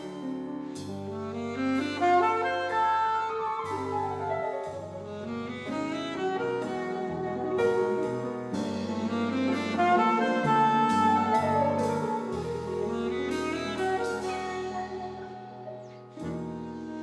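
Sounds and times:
double bass: 0.0 - 17.0
piano: 0.0 - 17.0
saxophone melody: 0.9 - 17.0.

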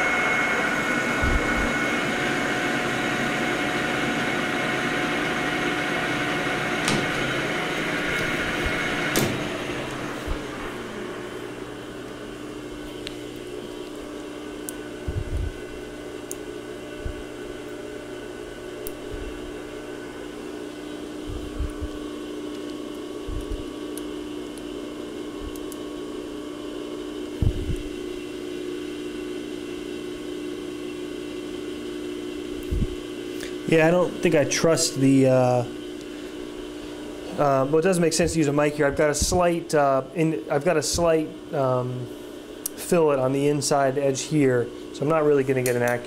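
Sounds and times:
lathe chuck winding down: 0.0 - 12.7
machine hum: 0.0 - 46.0.

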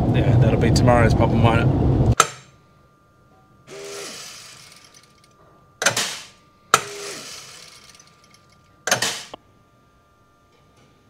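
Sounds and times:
faint steady machine whine: 0.0 - 11.0
sharp mechanical clacks: 3.7 - 9.4
grain rattling and hissing: 6.0 - 9.4.

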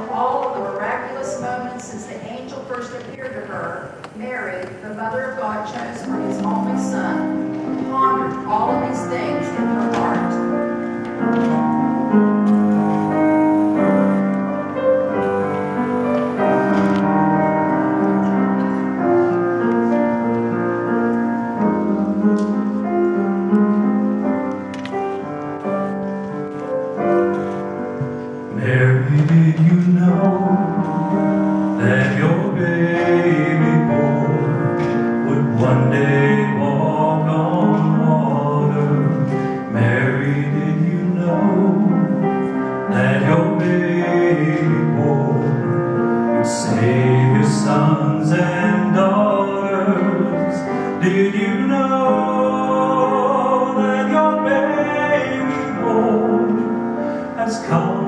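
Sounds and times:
solo piano: 0.0 - 58.0
man singing into microphone: 28.5 - 58.0.

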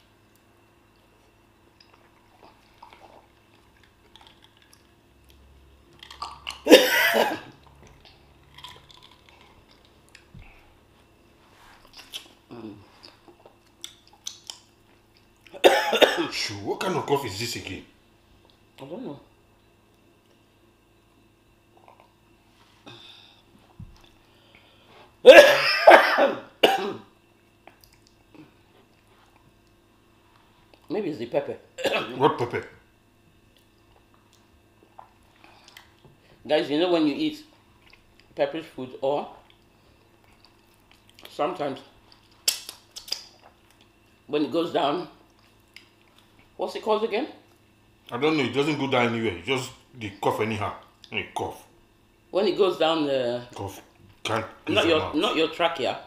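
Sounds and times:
quiet chewing: 0.2 - 6.6, 7.5 - 10.6, 11.8 - 15.6, 21.6 - 22.4, 27.4 - 30.9, 33.4 - 36.4, 37.6 - 38.4, 39.4 - 41.4, 42.0 - 44.2, 45.2 - 46.6
loud cough: 6.6 - 7.5, 15.6 - 17.1, 25.3 - 27.1, 31.8 - 32.2.

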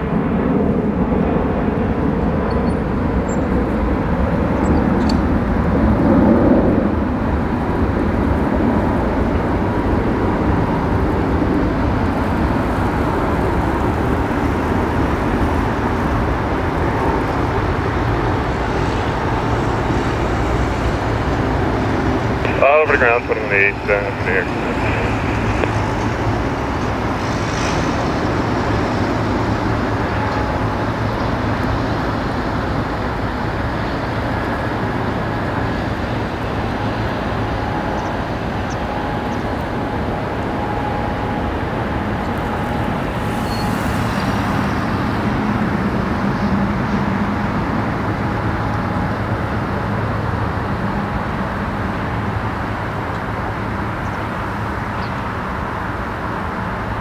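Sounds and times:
engine rumble with hum: 0.0 - 57.0.

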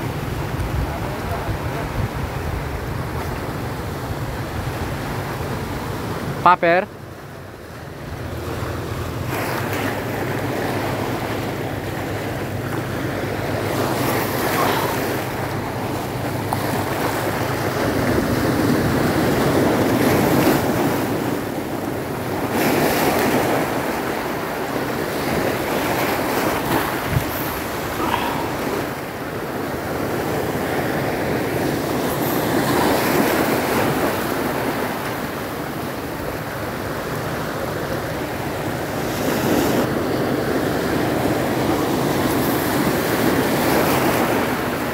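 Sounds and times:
wind buffeting microphone: 0.0 - 6.3, 7.9 - 36.5
sea waves washing onto shore: 0.0 - 44.9.

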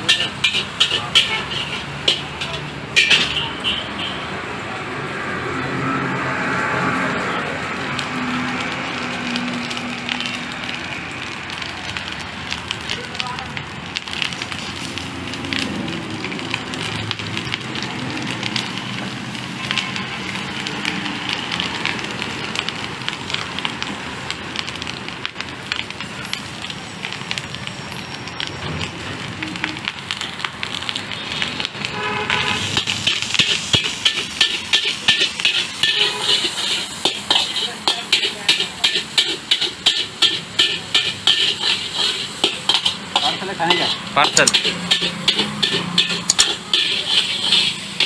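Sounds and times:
metal spatula scraping a wok: 0.0 - 3.6, 32.3 - 48.0
food sizzling in a wok: 0.0 - 48.0.

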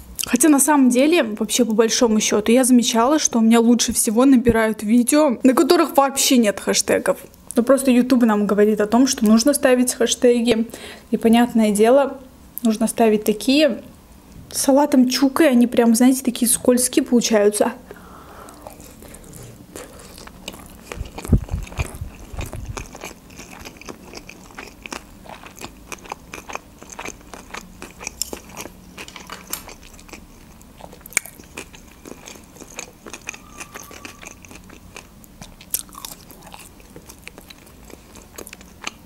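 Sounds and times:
close-miked chewing: 18.4 - 39.0.

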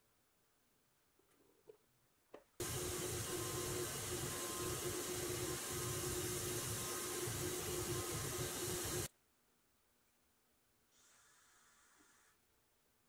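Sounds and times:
spray gun hissing: 2.6 - 9.1.

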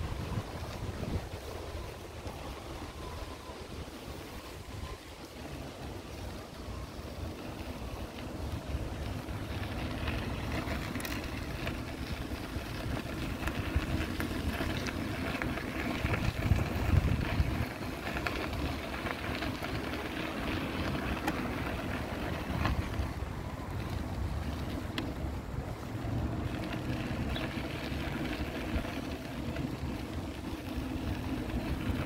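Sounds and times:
wind on microphone: 0.0 - 5.7, 15.5 - 18.7
low street rumble: 0.0 - 32.0.

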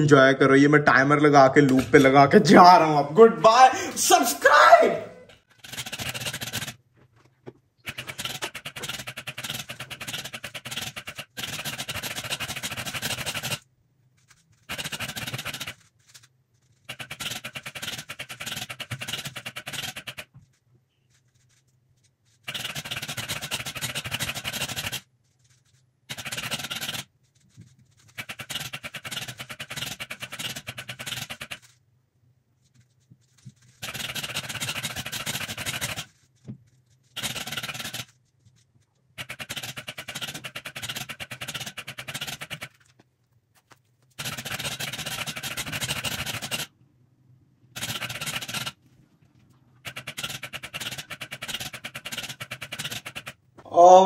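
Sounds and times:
robot motors clattering turning a cube: 5.4 - 6.8, 7.9 - 31.8, 32.7 - 38.6, 39.2 - 42.9, 44.2 - 46.7, 47.8 - 48.8.

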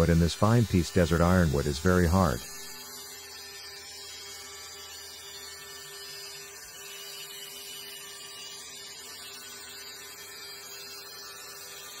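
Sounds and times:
cutting noise: 0.0 - 2.8
constant tone: 0.0 - 5.3.

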